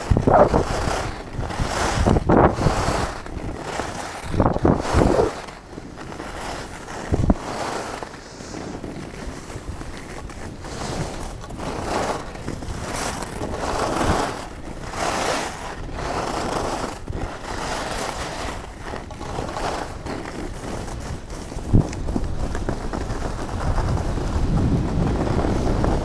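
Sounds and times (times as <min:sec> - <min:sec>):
skis scraping across snow: 0:00.0 - 0:26.0
wind on microphone: 0:00.0 - 0:26.0.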